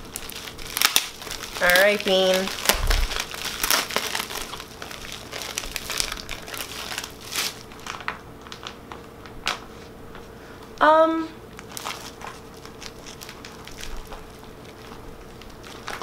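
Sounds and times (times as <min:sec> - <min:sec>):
plastic packaging crinkling: 0:00.0 - 0:09.8, 0:11.4 - 0:16.0.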